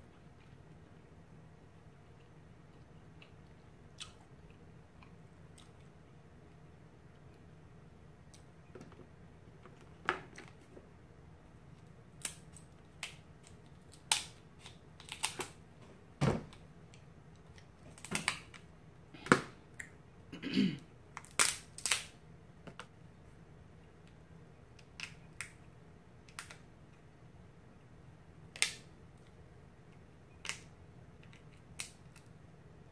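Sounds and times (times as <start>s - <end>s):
crab shells cracking: 12.2s - 15.6s, 21.2s - 22.2s.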